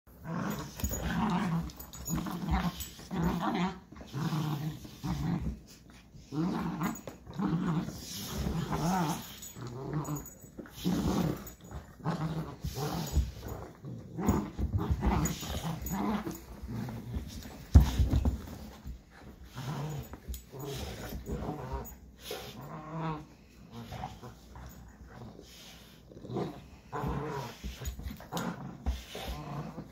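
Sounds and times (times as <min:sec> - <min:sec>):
puppy play-growling: 0:00.1 - 0:29.9.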